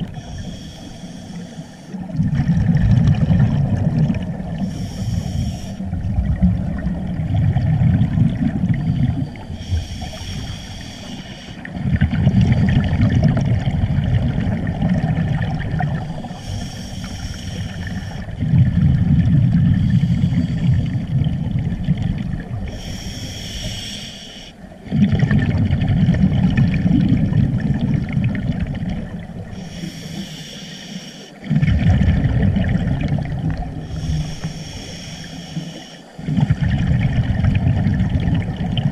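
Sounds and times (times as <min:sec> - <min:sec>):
regulator hissing inhale: 0:00.0 - 0:02.1, 0:04.6 - 0:06.0, 0:09.4 - 0:11.7, 0:16.2 - 0:18.3, 0:19.7 - 0:21.0, 0:22.7 - 0:24.7, 0:29.5 - 0:31.5, 0:33.8 - 0:36.3
exhaled air bubbling: 0:00.0 - 0:38.9.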